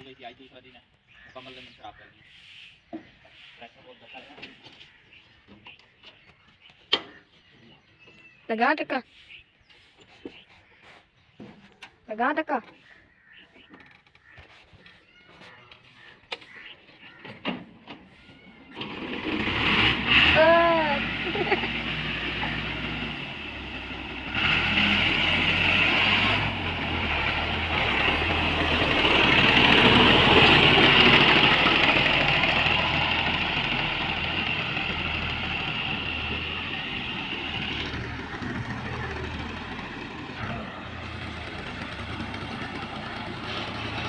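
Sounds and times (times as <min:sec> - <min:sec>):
tractor diesel engine running: 0:15.1 - 0:44.0.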